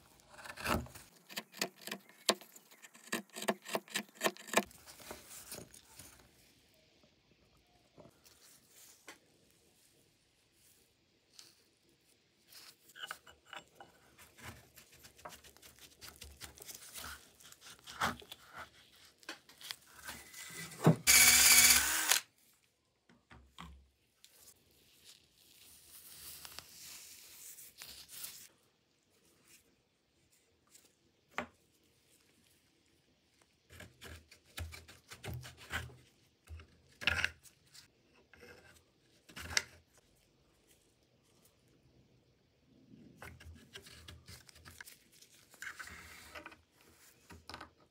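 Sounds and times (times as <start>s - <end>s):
clicks and scrapes: 0.1s - 6.1s.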